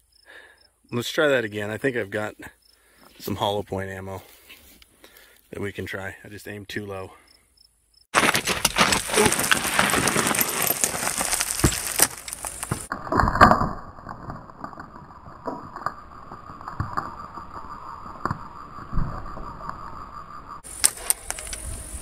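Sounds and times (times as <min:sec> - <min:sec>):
footsteps crunching on gravel: 0:08.1 - 0:12.9
dirt and stones scraping and rattling: 0:08.1 - 0:18.4, 0:20.6 - 0:22.0.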